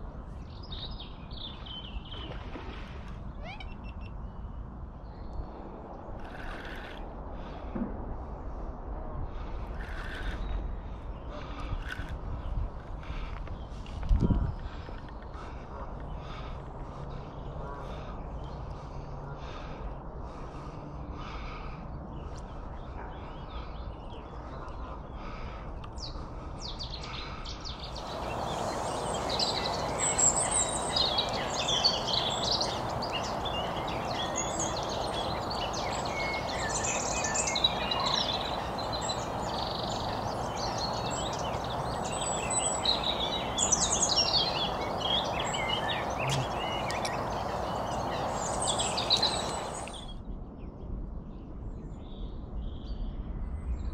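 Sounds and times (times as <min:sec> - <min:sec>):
birds chirping and trilling: 0:03.2 - 0:07.7, 0:09.3 - 0:50.3
steady background hiss: 0:27.8 - 0:50.1.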